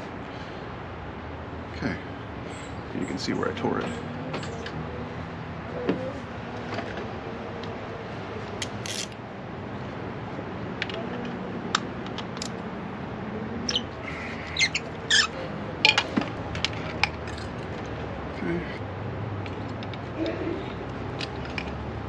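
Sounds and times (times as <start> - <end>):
hand tools clicking and tapping: 10.8 - 12.6, 15.8 - 17.9.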